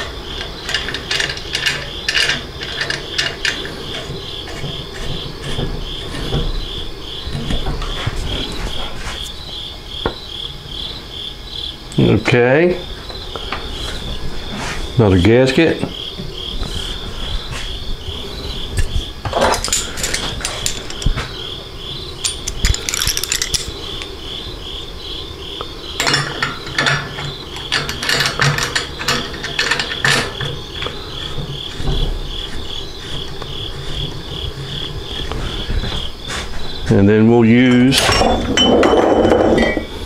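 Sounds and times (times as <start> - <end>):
metal parts clicking and rattling: 0.0 - 4.6, 19.2 - 21.3, 22.2 - 24.2, 26.0 - 31.4.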